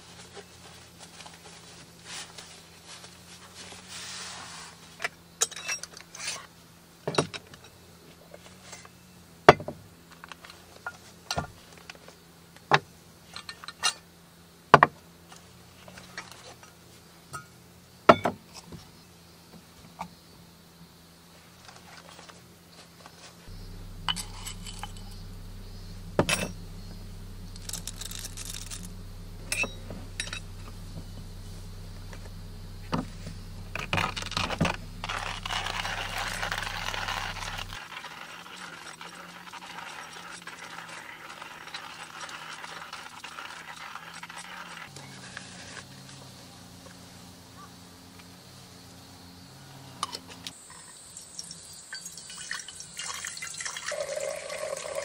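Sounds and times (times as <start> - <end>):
steady low hum: 23.5 - 37.8
coffee grinder grinding beans: 23.5 - 45.8, 53.0 - 55.0.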